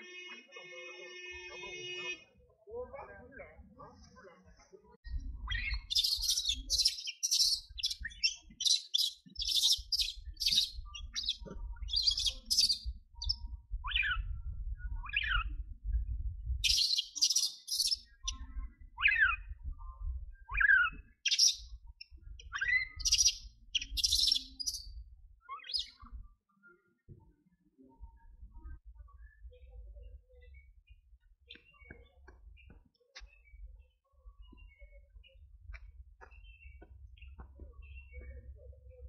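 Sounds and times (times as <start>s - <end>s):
high-pitched chirping calls: 5.4s - 14.4s, 16.6s - 19.6s, 20.4s - 26.2s
low rumble: 12.9s - 16.6s.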